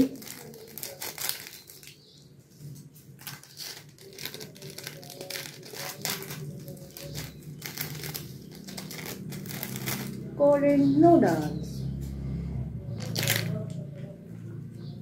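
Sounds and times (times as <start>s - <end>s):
plastic sachet crinkling: 0.0s - 10.3s, 13.0s - 13.6s.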